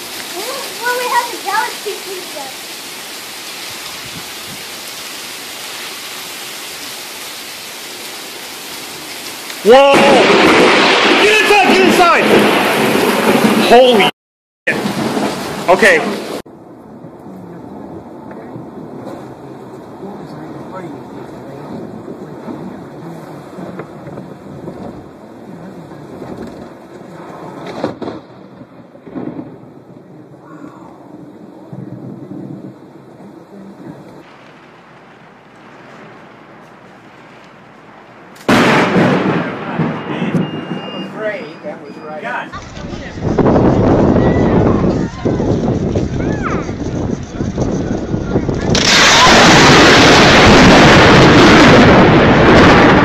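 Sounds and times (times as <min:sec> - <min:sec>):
lightning strike crack: 0:00.0 - 0:04.8, 0:08.2 - 0:14.1, 0:14.7 - 0:16.5, 0:17.9 - 0:25.2, 0:26.0 - 0:30.4, 0:34.2 - 0:41.4, 0:42.5 - 0:53.0
heavy rain pouring: 0:00.0 - 0:14.1, 0:14.7 - 0:53.0
car road noise: 0:14.9 - 0:38.6.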